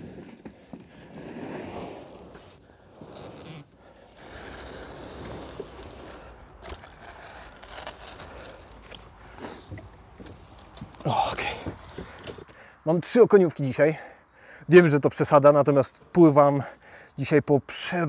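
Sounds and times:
fishing gear knocks and scrapes: 4.3s - 12.5s.

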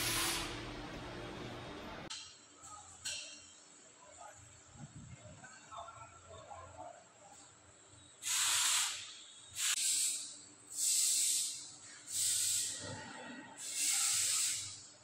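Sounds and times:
bursts of hissing: 8.2s - 12.8s, 13.6s - 14.8s.

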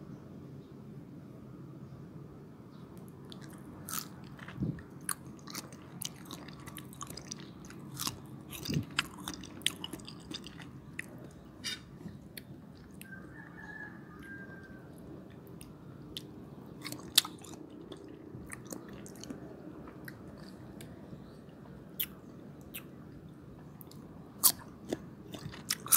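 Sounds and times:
crunchy bites and chewing: 3.3s - 13.2s, 15.6s - 20.9s, 23.8s - 25.9s.

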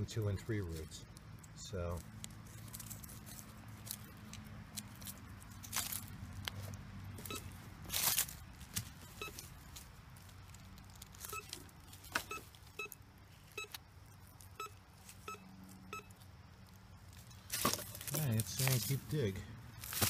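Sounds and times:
crunch of soil or leaves: 0.0s - 20.0s
metal detector beeps: 7.3s - 7.5s, 9.2s - 9.4s, 12.2s - 13.0s, 13.6s - 13.8s, 14.6s - 16.2s.

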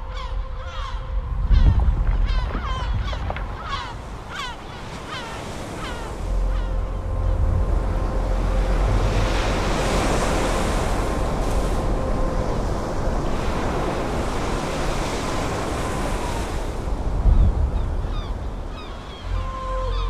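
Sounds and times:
deep rumble: 0.0s - 4.2s, 6.1s - 14.6s
seabirds calling: 0.0s - 20.0s
surf and wind rushing: 0.0s - 20.0s.

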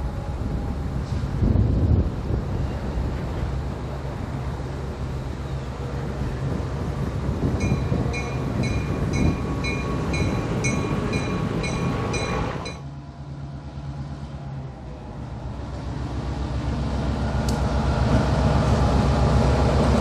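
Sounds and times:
diesel locomotive engine humming: 0.0s - 20.0s
locomotive bell ringing: 7.6s - 12.8s.

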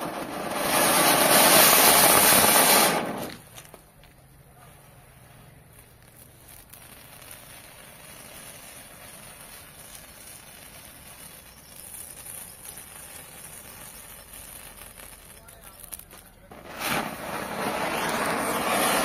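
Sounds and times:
sparks hissing fizz: 0.0s - 3.5s, 5.4s - 19.0s.

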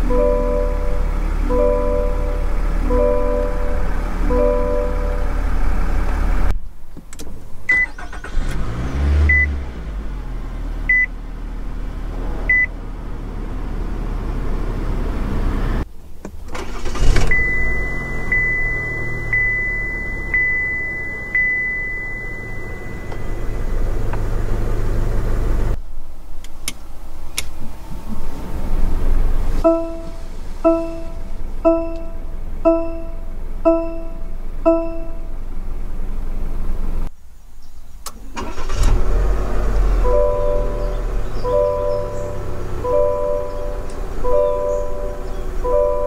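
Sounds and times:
dashboard chime: 0.0s - 5.6s, 17.4s - 23.6s, 29.6s - 35.4s, 40.0s - 46.0s
steady warning chime: 0.0s - 5.6s, 17.3s - 23.7s, 29.6s - 35.4s, 40.0s - 46.0s
truck engine idling: 0.0s - 6.6s, 9.3s - 37.1s, 38.0s - 46.0s
car cabin hum: 0.0s - 8.5s, 9.3s - 37.1s, 38.0s - 46.0s
car engine cranking and catching: 0.0s - 37.1s, 37.7s - 46.0s.

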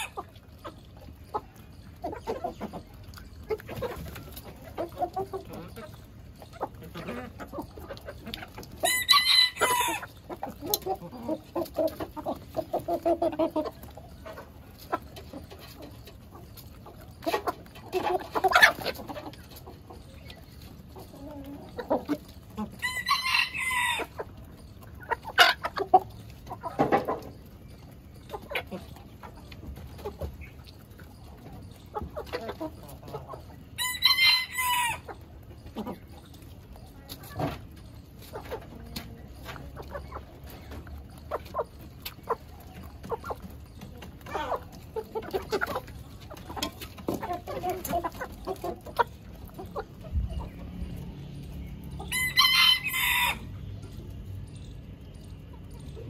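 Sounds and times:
chickens clucking: 0.0s - 56.0s
high-pitched chicken call: 8.8s - 10.1s, 22.8s - 24.2s, 33.8s - 35.2s, 52.0s - 53.5s.

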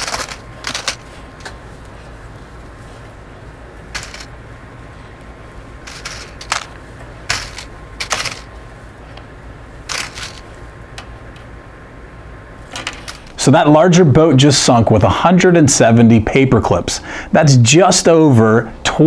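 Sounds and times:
paper clips clicking and rattling: 0.0s - 1.6s, 3.9s - 4.3s, 5.9s - 8.5s, 9.9s - 11.1s
steady low hum: 0.0s - 19.0s.

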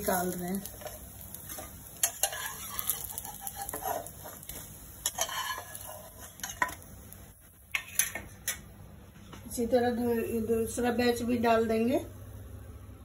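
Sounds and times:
oil sizzling: 0.0s - 8.8s
metal spatula scraping pan: 0.8s - 6.8s.

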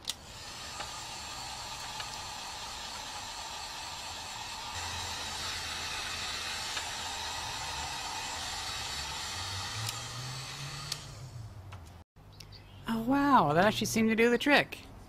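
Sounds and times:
hot air gun hissing: 0.0s - 11.5s.

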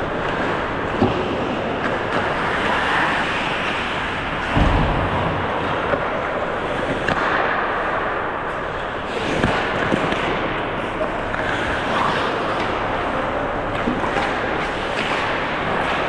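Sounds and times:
skating and hockey play: 0.0s - 16.0s
heavy low thud: 4.5s - 6.3s.

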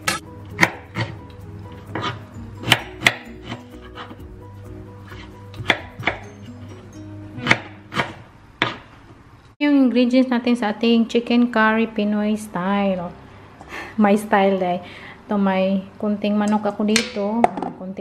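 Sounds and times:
knife chopping on cutting board: 0.0s - 1.2s, 1.8s - 4.2s, 5.0s - 6.3s, 7.4s - 8.9s.

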